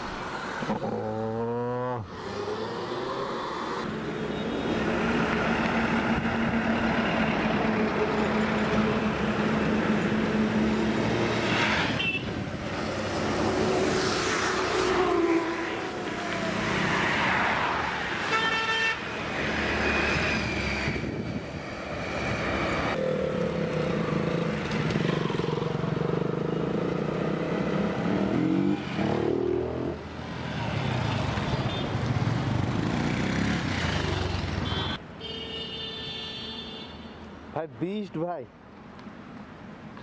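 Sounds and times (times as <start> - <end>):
road traffic: 0.0 - 40.0
vehicle horn honking: 18.3 - 19.0
motorcycle engines running: 23.0 - 29.6.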